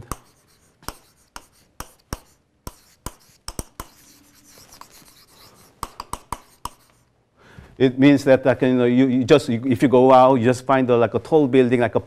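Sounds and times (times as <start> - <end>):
pen rubbing strokes: 0.0 - 7.1
stylus tapping on glass screen: 5.8 - 6.8.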